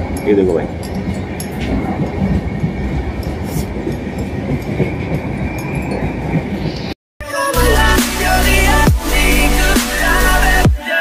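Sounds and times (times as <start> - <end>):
train wheels rumbling on rails: 0.0 - 7.0.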